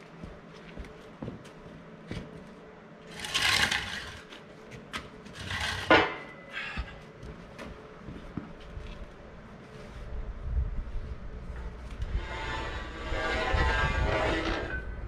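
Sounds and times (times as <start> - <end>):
rasping scrapes: 3.1 - 4.4, 12.0 - 14.9.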